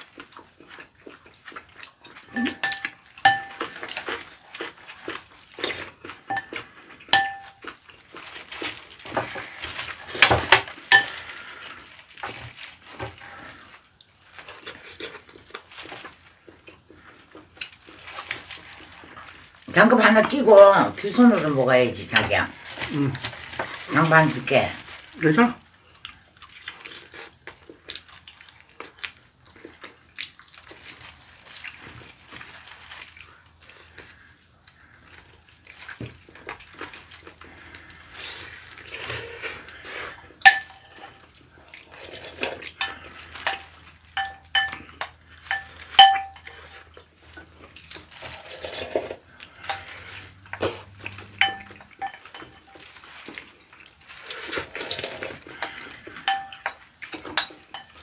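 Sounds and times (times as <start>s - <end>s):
eating noises: 0.0s - 58.0s
utensil clinking on glass bowl: 2.3s - 3.7s, 6.3s - 7.6s, 10.9s - 11.2s, 40.5s - 41.2s, 42.8s - 46.6s, 51.3s - 52.8s, 55.6s - 58.0s.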